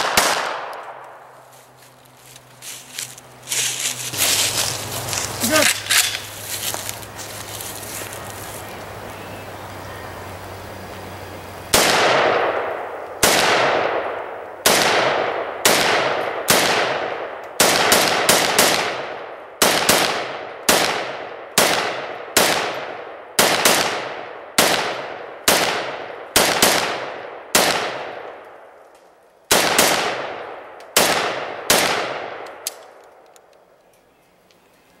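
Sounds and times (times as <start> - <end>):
rifle gunshots with echo: 0.0 - 1.0, 11.7 - 28.5, 29.5 - 32.6.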